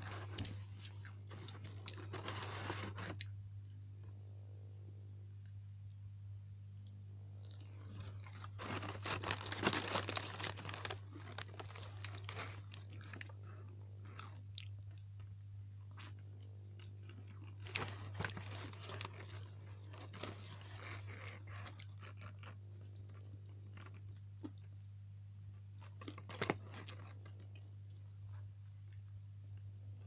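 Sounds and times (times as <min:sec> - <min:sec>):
person chewing chicken wings: 0:07.2 - 0:15.0, 0:16.8 - 0:24.7.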